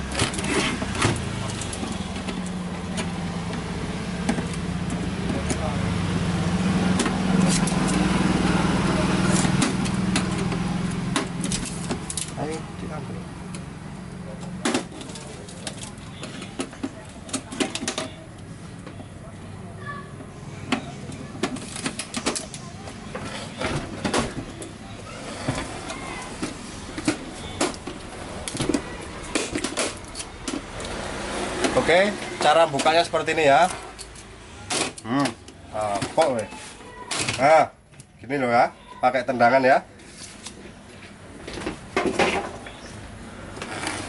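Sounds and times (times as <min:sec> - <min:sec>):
clicks and knocks of tv casing: 0:14.4 - 0:19.0, 0:20.7 - 0:24.8, 0:25.4 - 0:30.8.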